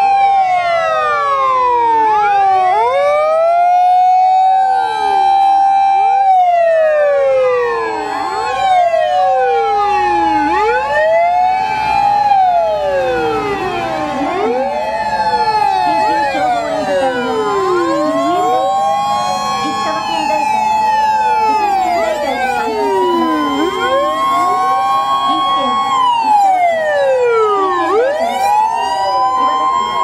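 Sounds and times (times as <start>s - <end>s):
fire engine sirens wailing: 0.0s - 30.0s.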